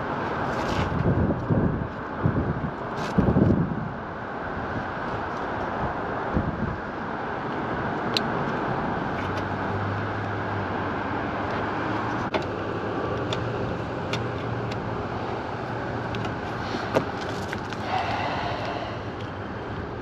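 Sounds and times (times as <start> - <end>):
outdoor traffic rumble: 0.0 - 20.0
low hum: 17.7 - 20.0.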